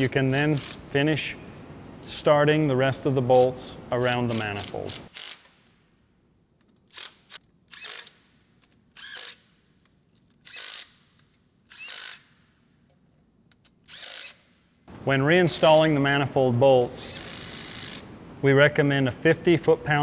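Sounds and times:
cordless power tool spinning: 0:09.0 - 0:09.4, 0:10.4 - 0:11.0, 0:11.7 - 0:12.3, 0:13.9 - 0:14.5, 0:17.1 - 0:18.0.

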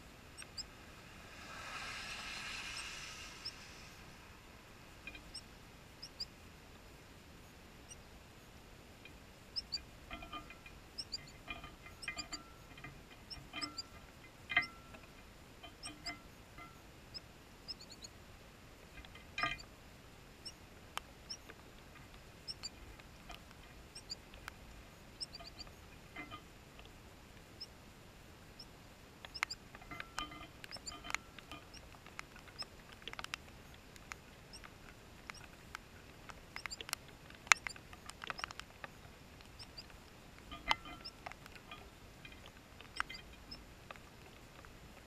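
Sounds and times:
small birds chirping: 0:00.3 - 0:00.8, 0:05.1 - 0:06.4, 0:09.5 - 0:12.4, 0:17.1 - 0:18.2, 0:22.4 - 0:25.9, 0:28.5 - 0:33.4, 0:36.5 - 0:39.9, 0:42.8 - 0:43.6
bird tapping metal seed feeder: 0:09.0 - 0:16.8, 0:19.0 - 0:19.7, 0:28.6 - 0:33.4, 0:40.5 - 0:43.6.

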